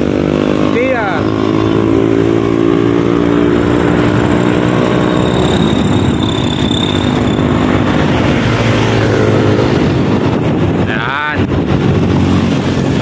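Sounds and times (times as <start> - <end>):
small motorcycle engine running: 0.0 - 9.4
road traffic: 0.0 - 13.0.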